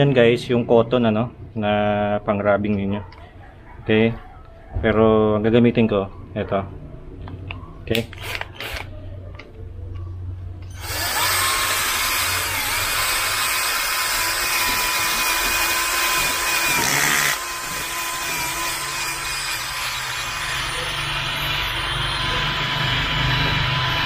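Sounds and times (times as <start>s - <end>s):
drill motor whine: 10.6s - 24.0s.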